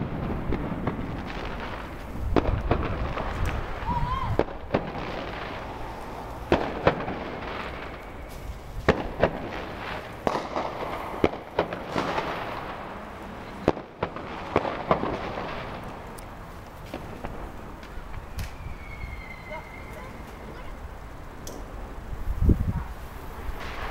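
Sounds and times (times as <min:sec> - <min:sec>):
sharp firework bangs: 0:00.0 - 0:20.8, 0:23.3 - 0:23.9
distant fireworks crackling: 0:00.0 - 0:23.9.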